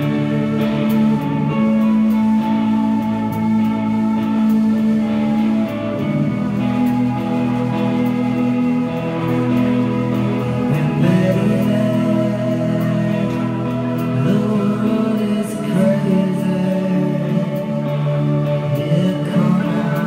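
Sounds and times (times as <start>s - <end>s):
rock band playing: 0.0s - 20.0s
man singing: 10.5s - 20.0s.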